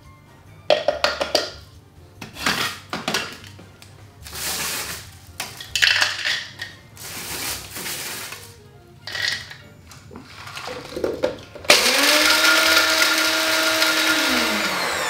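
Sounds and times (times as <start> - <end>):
biscuit pieces clattering into cup: 0.7 - 1.6, 4.3 - 11.8.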